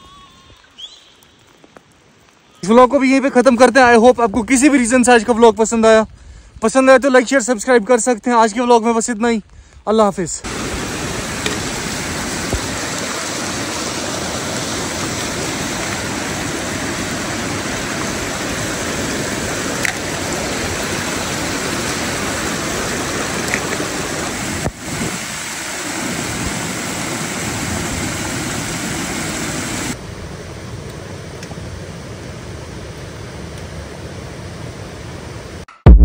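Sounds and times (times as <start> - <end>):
water rushing: 10.4 - 30.0.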